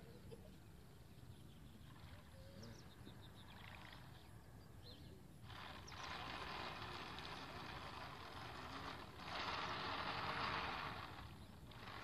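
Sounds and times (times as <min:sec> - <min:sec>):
model boat motor hiss: 0:05.4 - 0:12.0.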